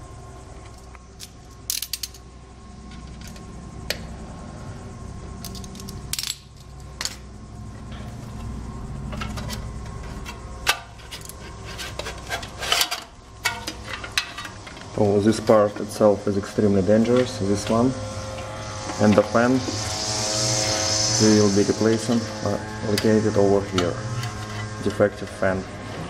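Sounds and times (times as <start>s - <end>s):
metallic clinks and clanks: 1.2s - 2.3s.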